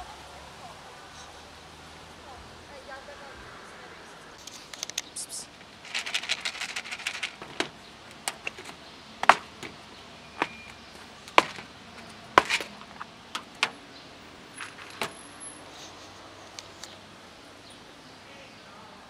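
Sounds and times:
plastic box set down on concrete: 0:07.3 - 0:09.8, 0:10.4 - 0:13.8, 0:14.6 - 0:15.2.

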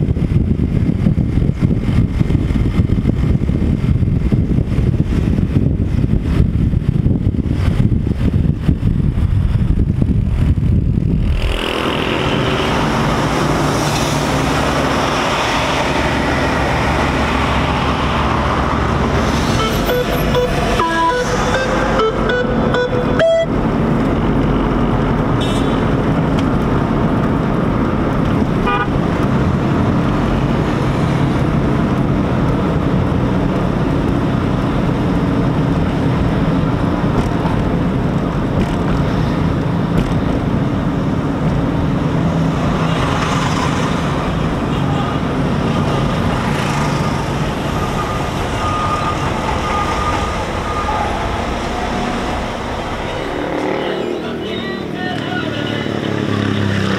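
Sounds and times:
car engine and road drone: 0:00.0 - 0:56.9
short car horn toots: 0:25.4 - 0:25.8.

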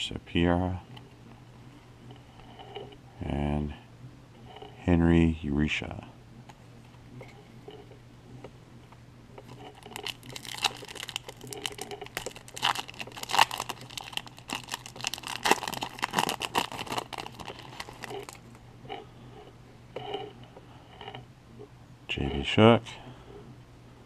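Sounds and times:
foil wrapper tearing and crinkling: 0:09.7 - 0:18.6.

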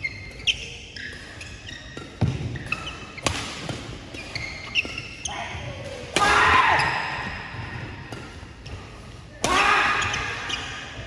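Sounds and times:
shoes squeaking on court floor: 0:00.0 - 0:06.1, 0:09.9 - 0:11.0
rackets hitting shuttlecock: 0:00.1 - 0:08.8.

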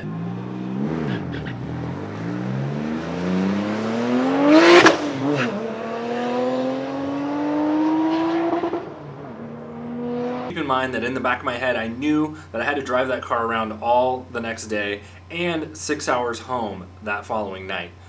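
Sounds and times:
car engine accelerating hard: 0:00.0 - 0:10.6.

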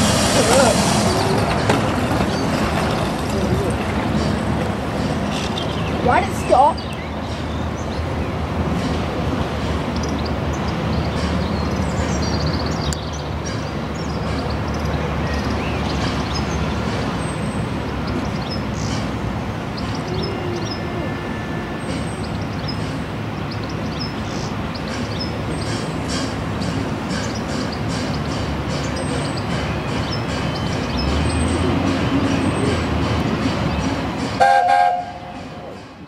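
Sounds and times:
steam locomotive exhaust: 0:00.0 - 0:02.8, 0:24.4 - 0:36.0
birds chirping: 0:00.5 - 0:34.4.

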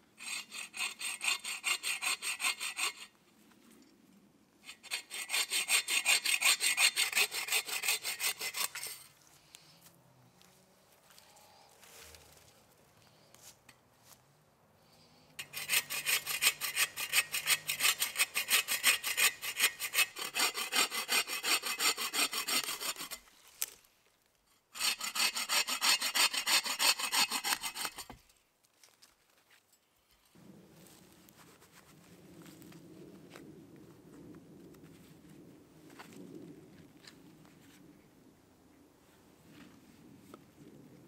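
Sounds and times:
saw cutting through branch: 0:00.2 - 0:03.2, 0:04.7 - 0:09.1, 0:15.4 - 0:23.7, 0:24.8 - 0:28.2.

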